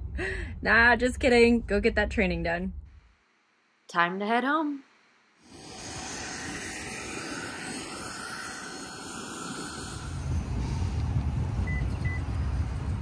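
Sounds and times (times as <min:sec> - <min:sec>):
jet aircraft hiss: 0:05.4 - 0:13.0
low rumble: 0:05.5 - 0:13.0.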